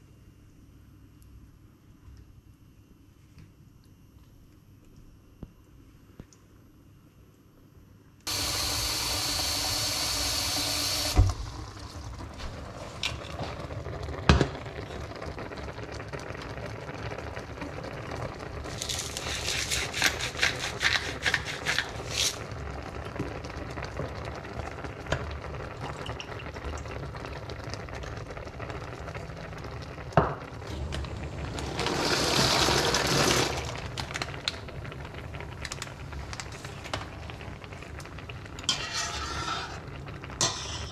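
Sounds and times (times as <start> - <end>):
tap water running into pot: 8.3 - 13.2, 30.2 - 34.6.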